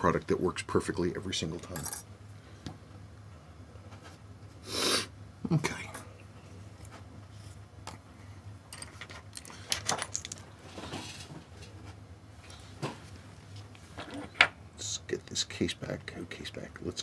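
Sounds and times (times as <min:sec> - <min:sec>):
metallic clicks of small parts: 0:08.7 - 0:10.5.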